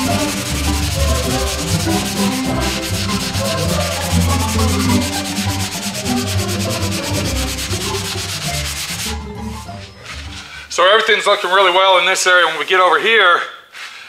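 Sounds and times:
sanding block scraping filler: 0.0s - 10.6s.

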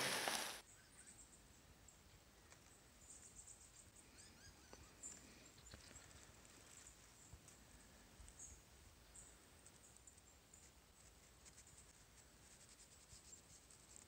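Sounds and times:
faint high bird chirps: 0.6s - 11.1s.

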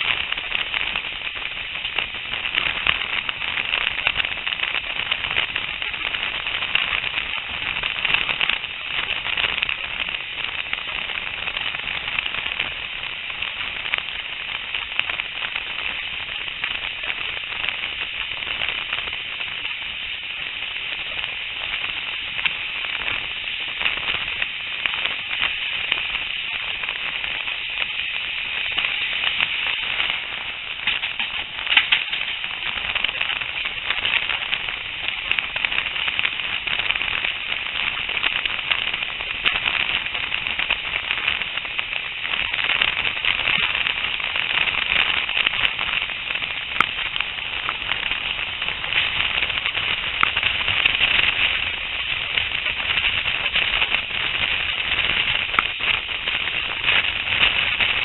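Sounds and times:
wind: 0.0s - 58.0s.

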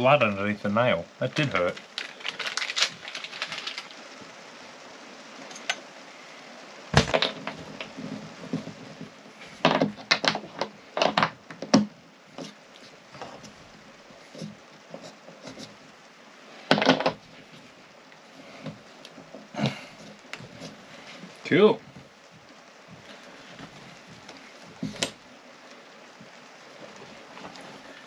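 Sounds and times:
knocks on thin wooden wall panel: 7.0s - 7.5s.

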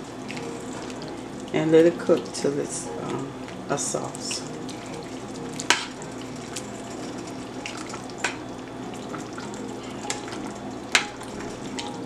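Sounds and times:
sauce bubbling: 0.0s - 12.0s.

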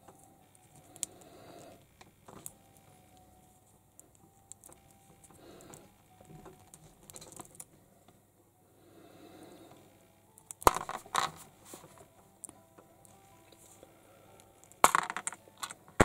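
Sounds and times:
plastic parts clicking: 4.0s - 7.7s, 10.3s - 13.2s, 14.4s - 16.0s
plastic clatter: 10.6s - 12.0s, 14.8s - 16.0s
soft rustle: 11.3s - 12.1s.

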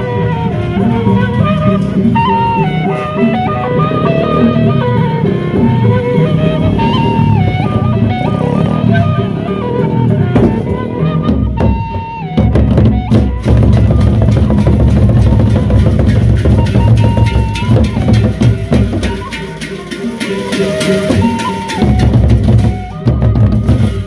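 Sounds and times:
held melodic notes: 0.0s - 24.0s
barrel drums beaten fast: 11.4s - 24.0s.

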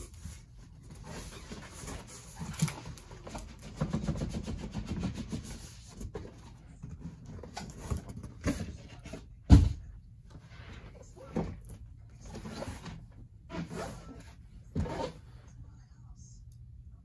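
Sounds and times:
cardboard rubbing and scraping: 0.0s - 6.4s, 12.2s - 15.4s.

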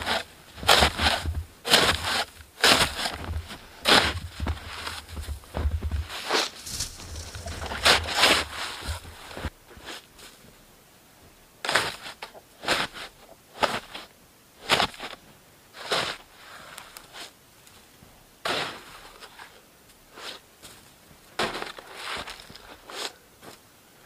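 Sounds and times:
footsteps crunching snow: 0.0s - 10.5s, 18.4s - 23.6s.

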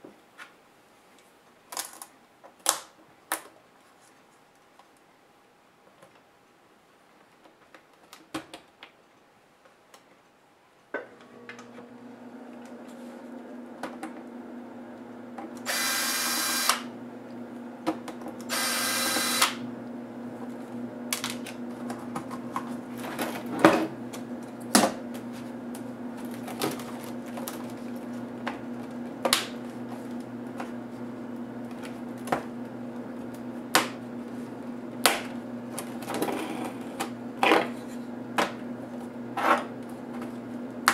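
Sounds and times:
short whirring bursts: 15.6s - 17.0s, 18.5s - 19.7s.

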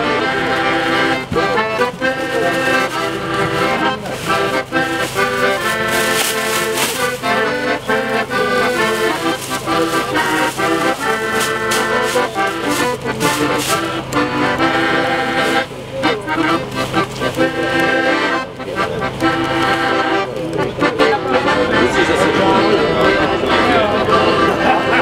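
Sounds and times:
accordion music: 0.0s - 25.0s.

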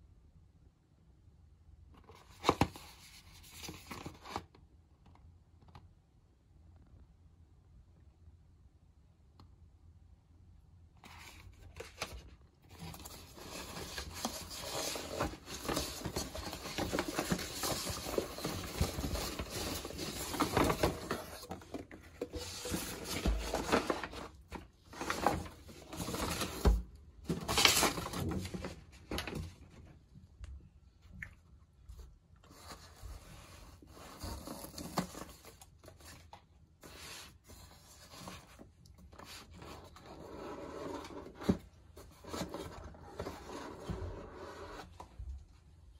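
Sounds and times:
paper and cardboard rustling: 11.0s - 29.9s, 32.4s - 45.3s.

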